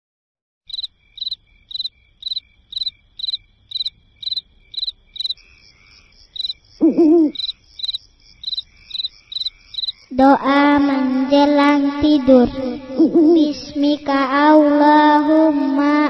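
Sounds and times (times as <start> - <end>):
crickets chirping: 0.7 - 13.5.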